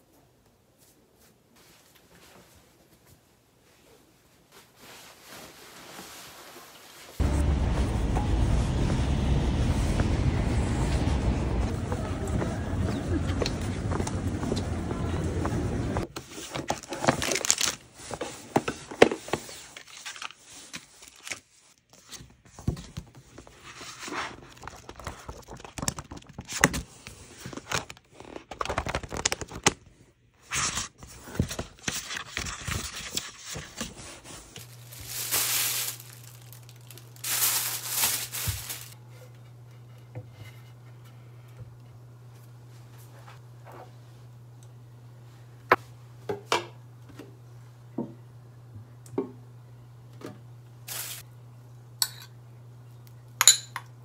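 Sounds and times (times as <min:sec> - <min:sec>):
steady low hum: 0:07.2 - 0:16.1
book pages flipping: 0:16.1 - 0:29.9, 0:30.5 - 0:39.0.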